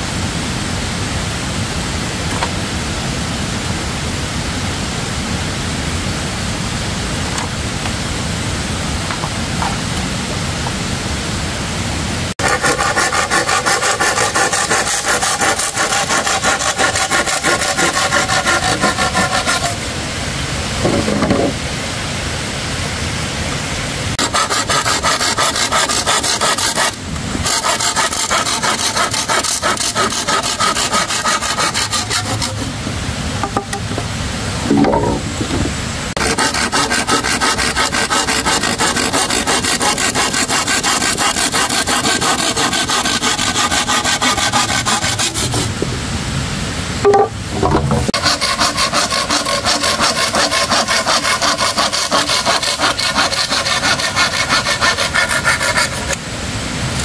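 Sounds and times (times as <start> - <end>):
hand saw cutting bamboo: 12.4 - 19.9, 24.2 - 34.0, 36.1 - 45.8, 47.6 - 56.2.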